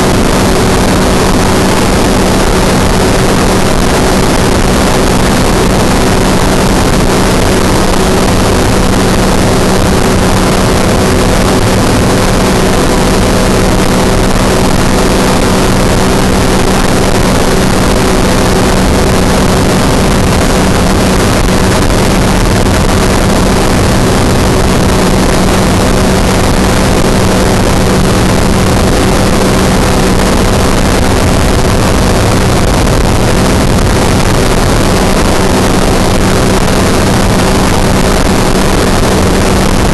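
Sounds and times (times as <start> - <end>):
aircraft engine humming: 0.0 - 39.9.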